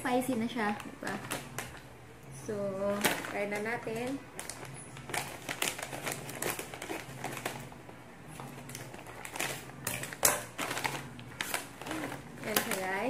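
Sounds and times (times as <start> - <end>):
plastic bag crinkling: 0.0 - 1.9, 2.8 - 13.0
scissors cutting plastic: 2.9 - 13.0.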